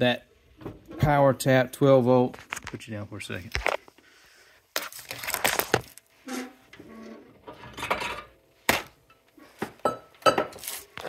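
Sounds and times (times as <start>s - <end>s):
objects knocking and clattering: 7.4s - 8.4s, 9.1s - 10.6s.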